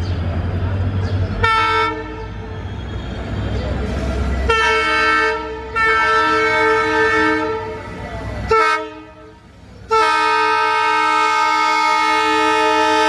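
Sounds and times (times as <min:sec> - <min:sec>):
locomotive engine rumble: 0:00.0 - 0:13.0
locomotive horn blasts: 0:04.5 - 0:13.0.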